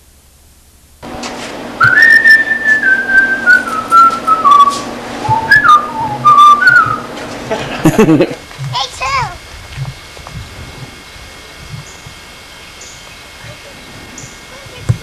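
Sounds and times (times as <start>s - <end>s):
person whistling a tune: 1.8s - 7.1s.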